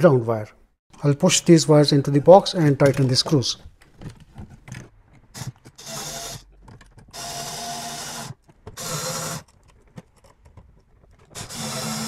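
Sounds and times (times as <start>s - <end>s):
electric screwdriver motor whining: 5.4s - 6.4s, 7.1s - 9.4s, 11.4s - 12.0s.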